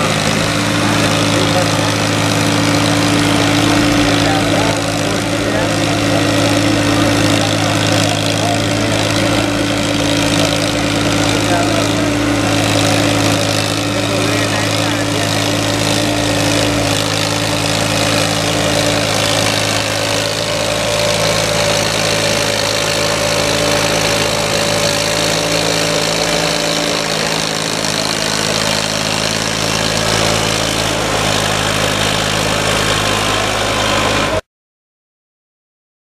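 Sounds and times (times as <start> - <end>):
tractor diesel engine running: 0.0 - 34.5.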